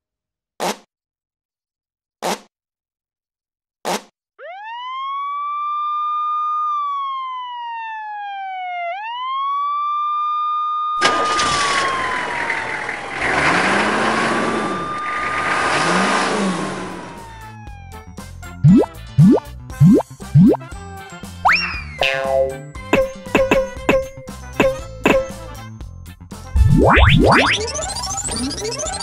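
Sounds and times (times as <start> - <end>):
cartoon ambulance siren wailing: 4.4 - 20.6, 21.4 - 25.6, 26.6 - 29.0.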